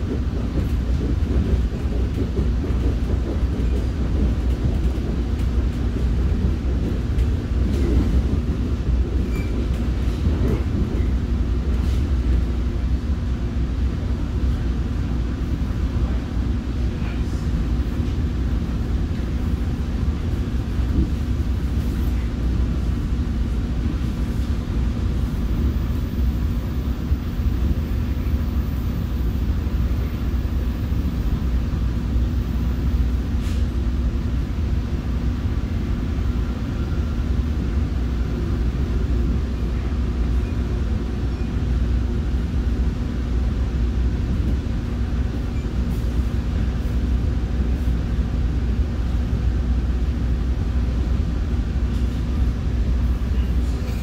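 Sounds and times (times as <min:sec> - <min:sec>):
train rumble inside coach: 0:00.0 - 0:54.0.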